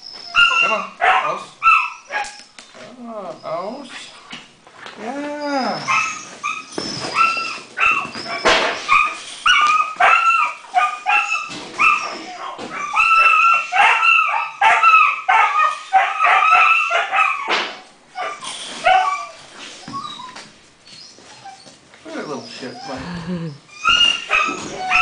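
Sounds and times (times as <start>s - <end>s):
puppy yipping: 0.0s - 2.4s, 5.7s - 23.0s, 23.7s - 25.0s
puppy whining: 0.0s - 3.9s, 4.9s - 25.0s.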